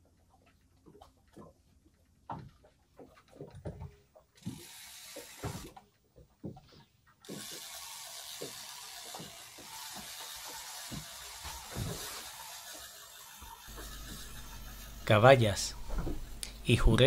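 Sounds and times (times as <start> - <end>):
fishing reel clicking: 4.4 - 5.8, 7.2 - 15.3.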